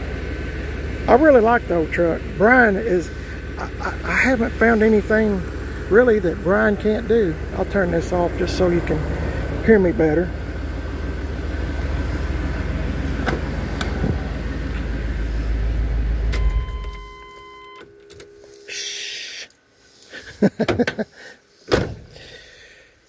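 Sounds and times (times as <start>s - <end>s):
engine idling: 0.0s - 19.2s
electronic warning tone: 16.3s - 19.1s.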